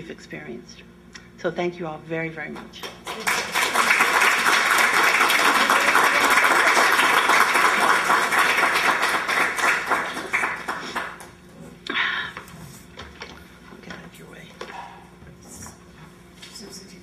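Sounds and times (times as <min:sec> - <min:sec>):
audience applauding: 0:02.9 - 0:11.4.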